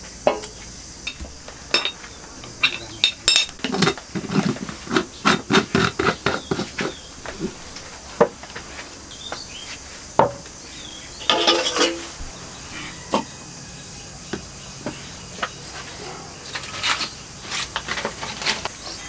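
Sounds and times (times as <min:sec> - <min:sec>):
jar set down: 0:11.2 - 0:12.1.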